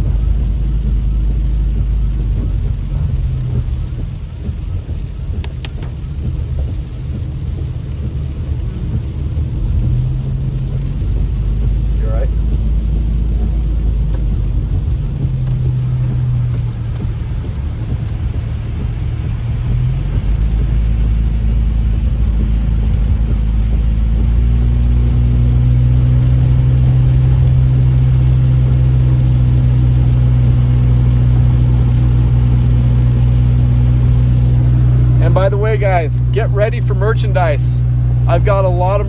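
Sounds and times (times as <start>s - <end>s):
car engine and road noise: 0.0s - 39.0s.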